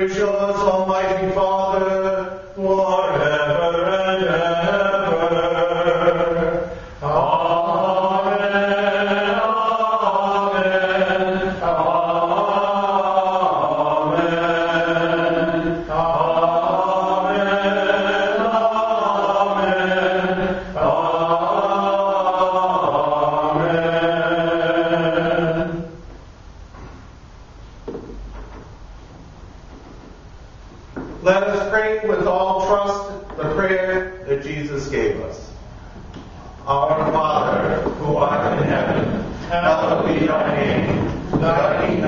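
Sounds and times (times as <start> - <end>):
liturgical chant: 0.0 - 26.2, 31.0 - 35.6, 36.2 - 42.0.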